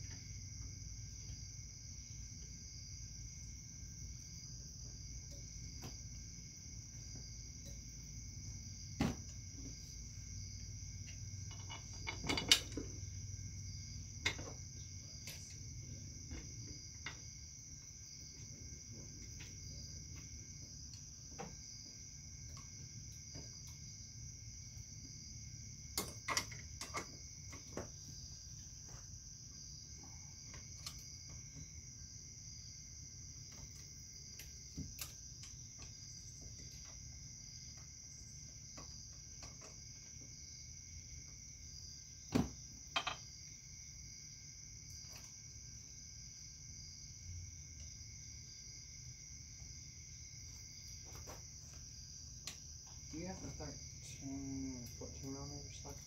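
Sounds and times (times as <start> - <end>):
insects chirring: 0.0 - 56.0.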